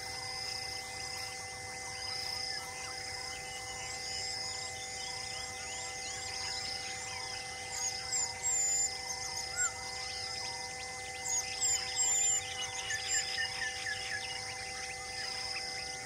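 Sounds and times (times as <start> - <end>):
droning hum: 0.0 - 16.0
birds chirping: 1.9 - 16.0
whistled bird calls: 3.3 - 16.0.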